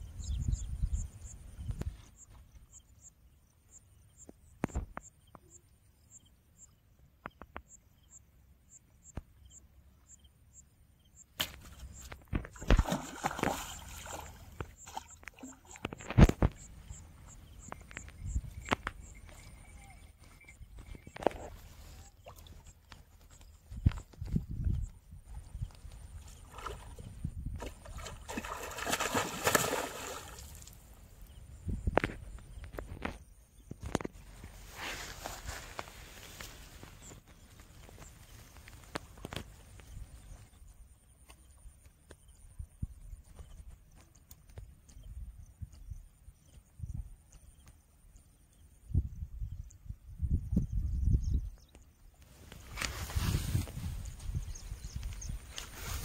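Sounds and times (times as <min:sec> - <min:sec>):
fish thrashing and splashing water: 0:12.4 - 0:16.1, 0:27.6 - 0:30.8.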